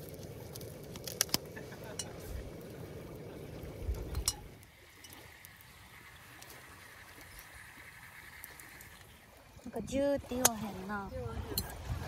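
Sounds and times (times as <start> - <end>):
gas burner rumbling: 0.0 - 5.2.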